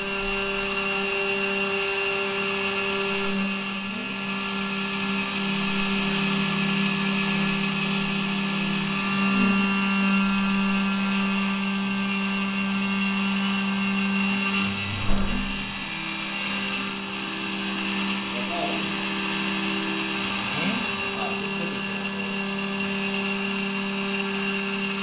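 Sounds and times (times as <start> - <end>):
milling spindle whining: 0.0 - 25.0
short thump: 14.6 - 16.0.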